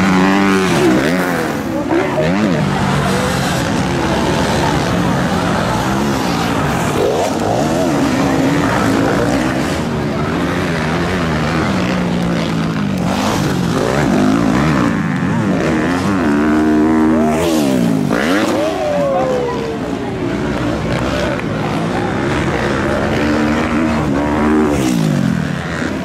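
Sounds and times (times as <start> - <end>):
motocross bike engines revving: 0.0 - 26.0.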